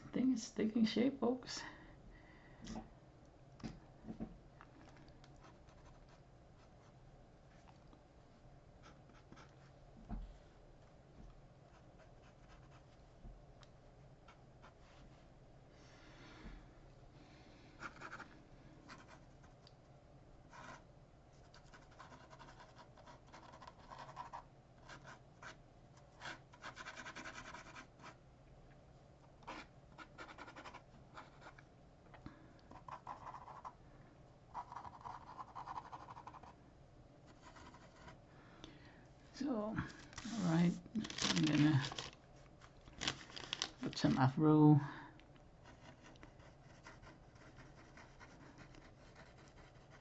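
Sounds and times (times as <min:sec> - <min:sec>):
low steady hum: 0:00.0 - 0:50.0
pen scratching on paper: 0:45.6 - 0:50.0.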